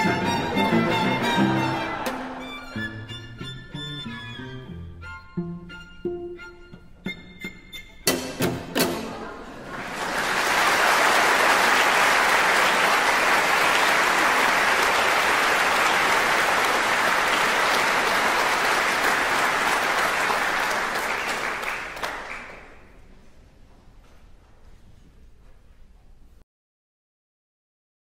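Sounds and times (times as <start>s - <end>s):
audience applauding: 0.0s - 2.6s, 9.6s - 23.0s.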